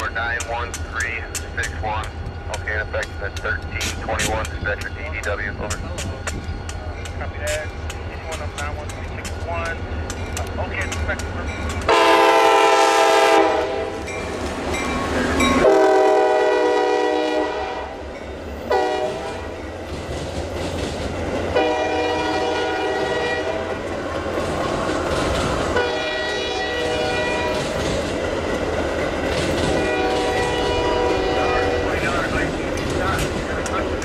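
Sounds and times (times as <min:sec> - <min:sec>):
low rumble of train: 0:00.0 - 0:34.0
locomotive air horn blasts: 0:11.9 - 0:14.0, 0:15.6 - 0:18.0, 0:18.7 - 0:19.5, 0:21.6 - 0:23.7, 0:25.8 - 0:27.5, 0:29.7 - 0:32.0.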